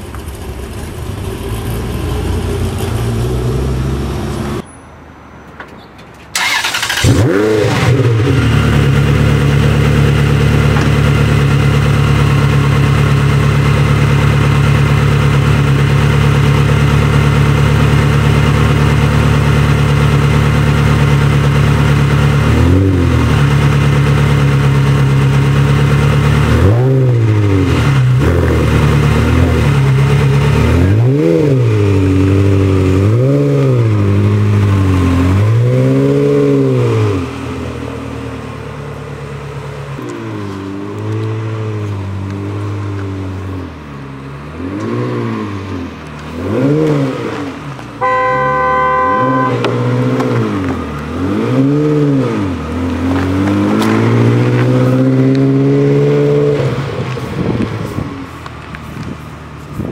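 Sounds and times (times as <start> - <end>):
car engine starting and idling: 0.0 - 4.7, 6.0 - 35.7, 36.4 - 59.9
engine revving: 6.4 - 37.7, 44.5 - 58.1.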